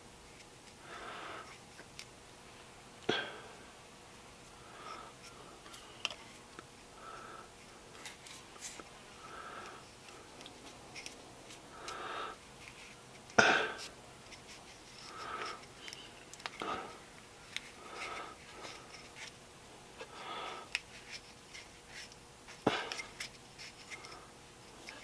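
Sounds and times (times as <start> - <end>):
soft breaths: 0.7 - 1.6, 4.4 - 19.4, 20.0 - 25.0
quiet handling of small objects: 1.4 - 25.0.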